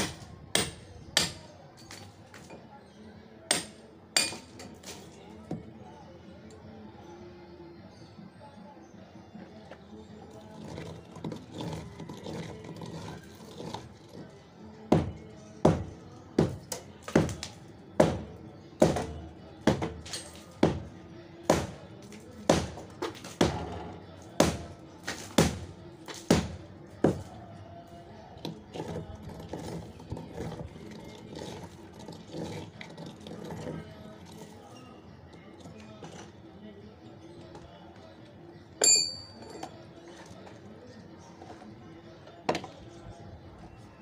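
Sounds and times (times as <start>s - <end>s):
hammer striking concrete: 0.0s - 1.5s, 3.5s - 4.6s, 14.9s - 20.9s, 21.5s - 21.8s, 22.4s - 23.8s, 24.4s - 27.3s.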